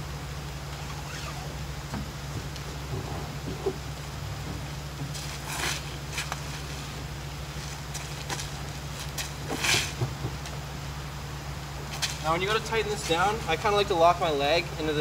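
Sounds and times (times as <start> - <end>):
steady low hum: 0.0 - 15.0
straps rasping against canoe: 7.9 - 10.5.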